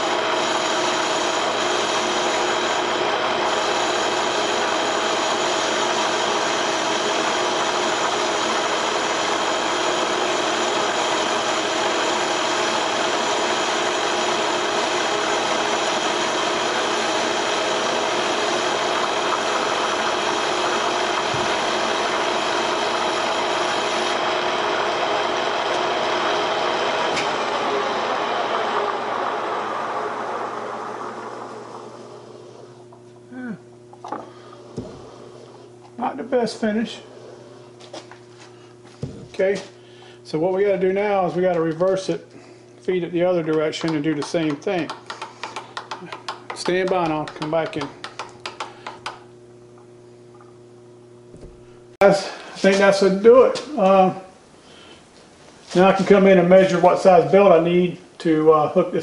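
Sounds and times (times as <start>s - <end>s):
hiss of cutting tool: 0.0s - 24.2s
lathe gearing whining: 0.0s - 54.2s.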